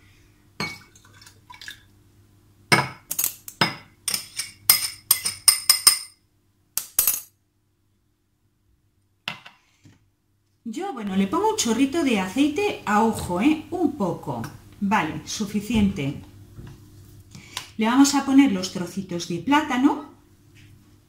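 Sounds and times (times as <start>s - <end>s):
liquid pouring into jar: 0.8s - 1.9s
spoon clinking on glass: 3.2s - 6.2s.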